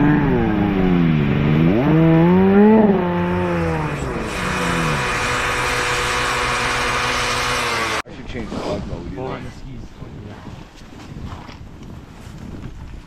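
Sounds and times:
high-pitched engine at full throttle: 0:00.0 - 0:08.1
snowmobile engine revving: 0:00.0 - 0:08.1.

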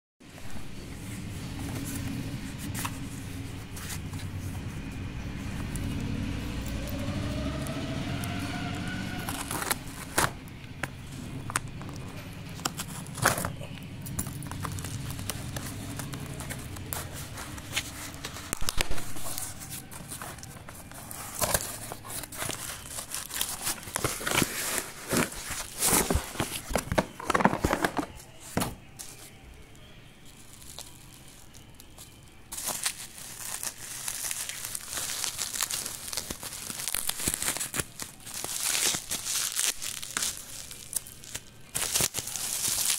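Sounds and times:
low hum with rising whine: 0:00.3 - 0:27.2
plastic packaging crinkling: 0:01.6 - 0:42.9
cardboard box being opened: 0:08.8 - 0:10.4, 0:11.4 - 0:29.2.

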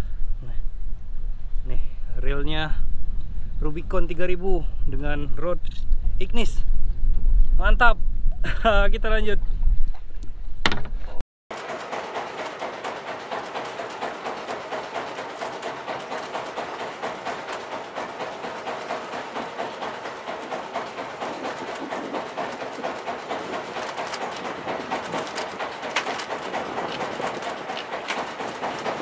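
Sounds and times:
boat engine knocking: 0:11.5 - 0:29.0.

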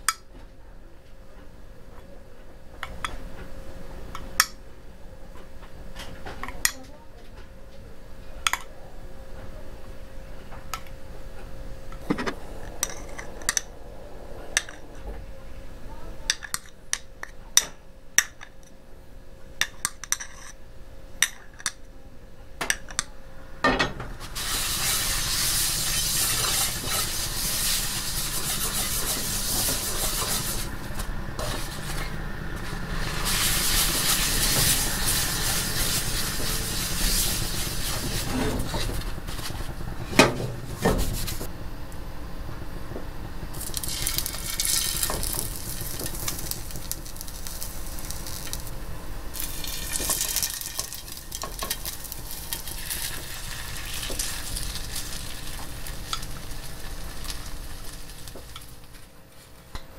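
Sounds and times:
food sizzling in a pan: 0:24.2 - 0:30.7, 0:32.6 - 0:38.3, 0:43.6 - 0:59.0.

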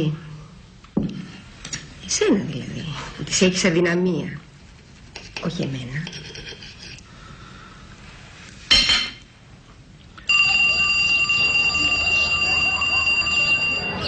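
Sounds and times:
school bell ringing: 0:10.3 - 0:14.0.

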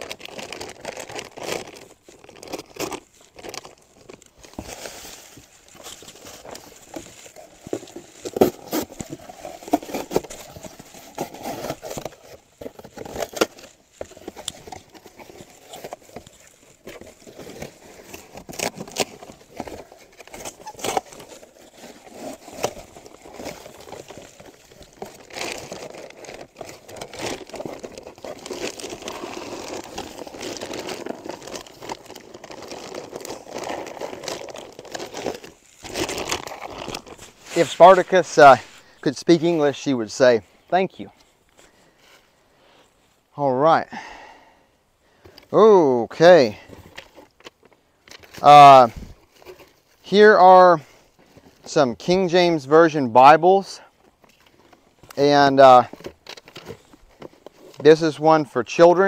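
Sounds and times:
packaging crackles and knocks: 0:00.0 - 0:39.0, 0:55.9 - 0:57.9
packaging crinkling: 0:00.0 - 0:39.0
packaging tearing: 0:00.0 - 0:39.0.

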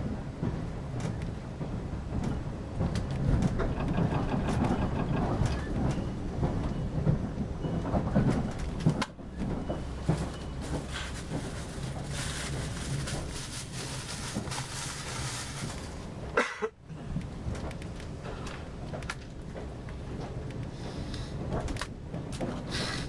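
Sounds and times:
train interior rumble: 0:00.0 - 0:23.0
wheel clicks and rattles: 0:02.9 - 0:06.7.

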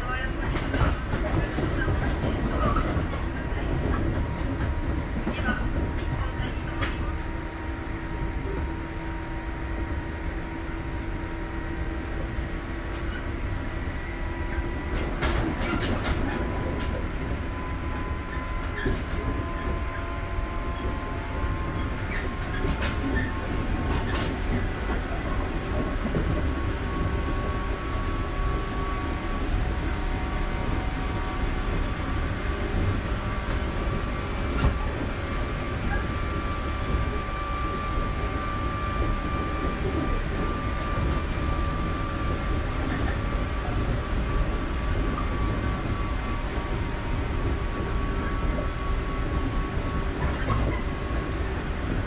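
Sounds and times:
train wheels rumbling on rails: 0:00.0 - 0:52.0
clicks from the track: 0:14.9 - 0:17.4.

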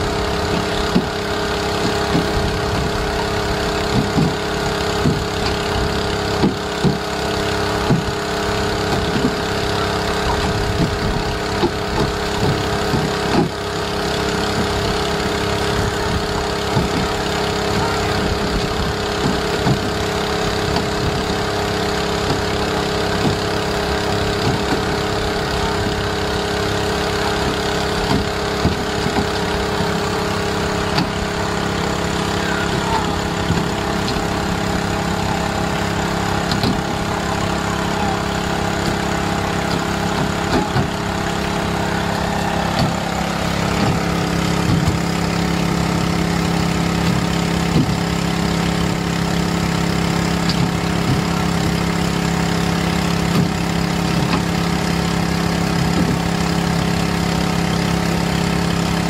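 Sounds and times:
boat engine running: 0:00.0 - 0:59.0
knocks and thuds: 0:00.4 - 0:03.2, 0:03.8 - 0:07.2, 0:07.8 - 0:09.6, 0:10.3 - 0:13.7, 0:16.1 - 0:23.6, 0:24.3 - 0:25.1, 0:27.4 - 0:29.9, 0:33.1 - 0:35.0, 0:35.7 - 0:37.2, 0:38.7 - 0:43.1, 0:43.7 - 0:45.2, 0:47.0 - 0:48.0, 0:50.5 - 0:51.8, 0:53.3 - 0:54.5, 0:55.8 - 0:56.3.

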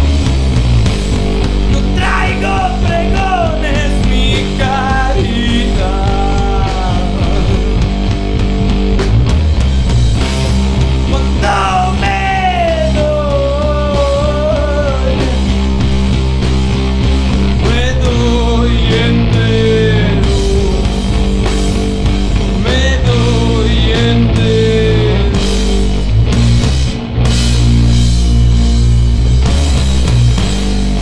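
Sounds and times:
rock band playing: 0:00.0 - 0:31.0
person singing: 0:01.7 - 0:08.0, 0:11.1 - 0:15.5, 0:17.6 - 0:21.3, 0:22.5 - 0:25.6.

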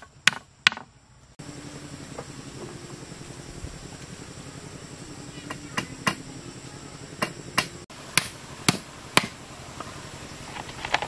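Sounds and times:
hammer striking bamboo poles: 0:00.0 - 0:00.9, 0:05.4 - 0:06.3, 0:07.2 - 0:09.4.

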